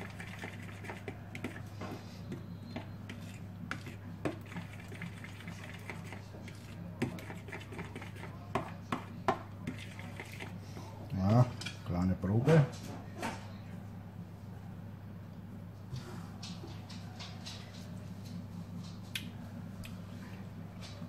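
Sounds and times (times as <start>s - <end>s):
spoon scraping a bowl: 0.0s - 10.6s.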